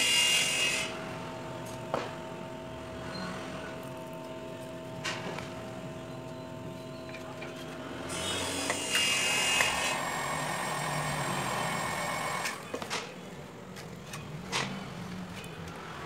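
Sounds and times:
heat gun hissing with whine: 8.1s - 12.6s.

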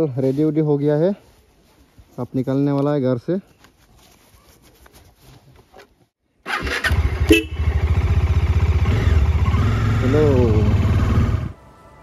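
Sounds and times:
gloves rustling: 0.3s - 6.2s
motorcycle engine running: 6.9s - 11.6s.

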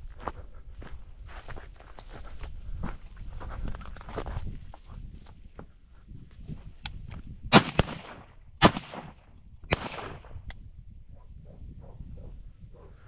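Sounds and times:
shotgun shots: 7.5s - 10.4s.

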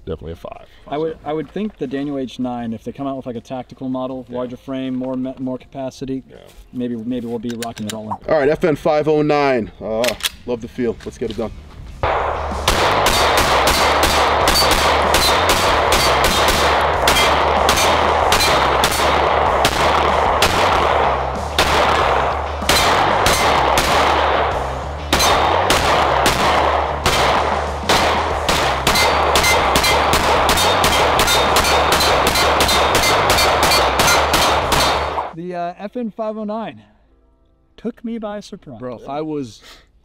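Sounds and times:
rapid pistol shots: 12.0s - 35.4s.

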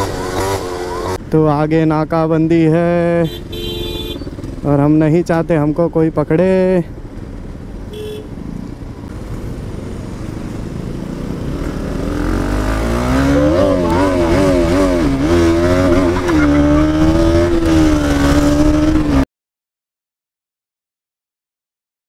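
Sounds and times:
motorcycle engine accelerating: 0.0s - 1.3s, 9.1s - 19.2s.

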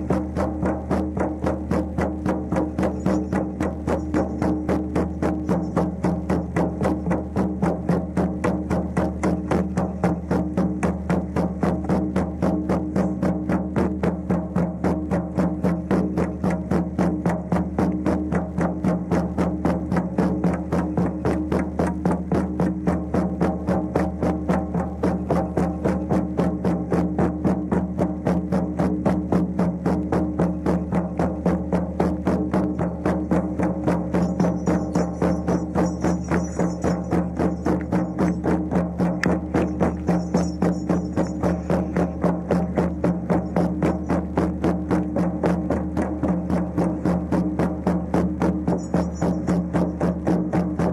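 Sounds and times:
frame drums beating: 0.0s - 50.9s.

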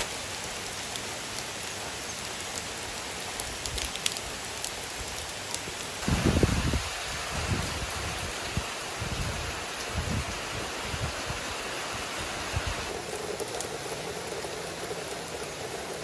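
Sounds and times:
steady rain on trees: 0.0s - 16.0s.

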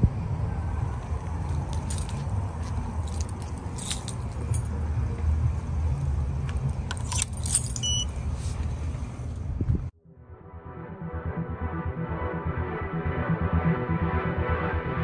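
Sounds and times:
keys jangling: 1.5s - 4.9s, 5.5s - 8.0s
high beep: 7.8s - 8.1s.

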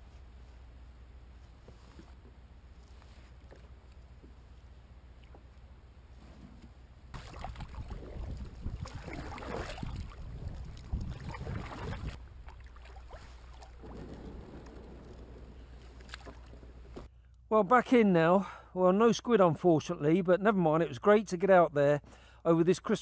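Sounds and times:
kayak scraping and shuffling: 1.3s - 4.6s, 6.1s - 17.1s.

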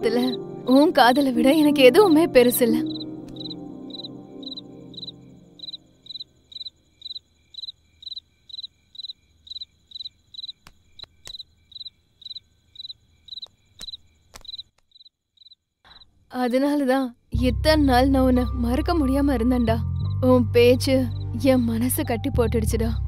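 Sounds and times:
cricket chirping: 2.4s - 16.9s, 19.9s - 22.1s
sharp clicks: 3.3s - 3.6s, 10.6s - 11.5s, 13.4s - 15.0s.

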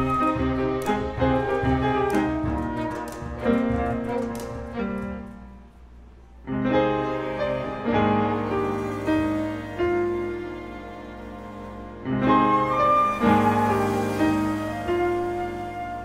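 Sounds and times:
flute melody: 0.0s - 16.0s
grand piano chords: 0.0s - 16.0s
strings playing: 6.4s - 16.0s.

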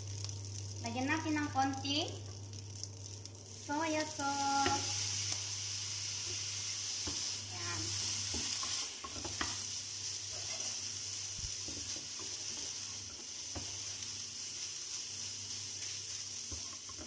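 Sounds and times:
rice sizzling in frying pan: 0.0s - 17.0s
spatula scraping and tapping pan: 7.0s - 7.3s, 8.2s - 9.7s, 10.3s - 10.9s, 11.6s - 14.1s, 15.8s - 17.0s.

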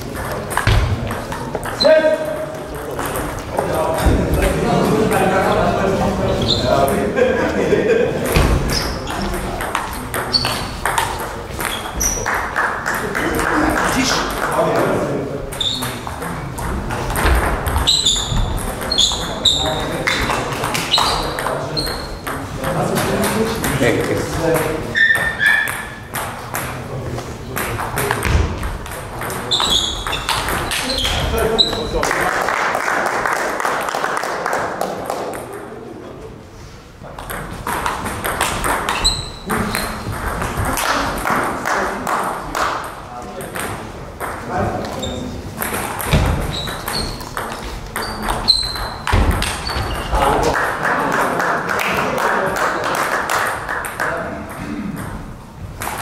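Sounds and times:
table tennis ball pinging: 0.0s - 4.2s, 8.3s - 12.8s, 15.5s - 26.8s, 27.5s - 31.9s, 37.2s - 41.6s, 42.7s - 50.5s
ping pong ball clicking: 9.2s - 11.9s, 37.2s - 41.0s, 45.6s - 49.7s
high squeak: 17.8s - 19.8s, 20.9s - 22.2s, 24.9s - 26.0s, 29.5s - 31.9s, 38.9s - 40.1s, 46.4s - 47.4s, 48.0s - 50.2s.

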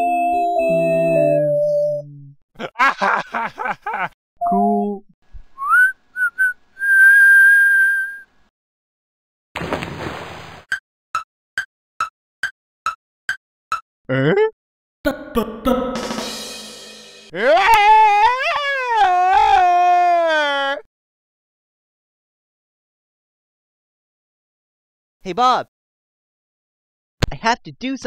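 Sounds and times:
rising whistle: 5.6s - 8.3s
warbling voice-like jabber: 14.1s - 16.0s.

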